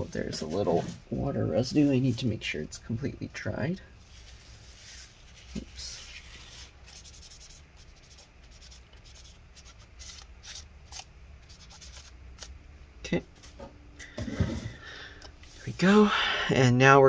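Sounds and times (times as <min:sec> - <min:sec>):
wipe rubbing on metal: 0:04.0 - 0:10.2.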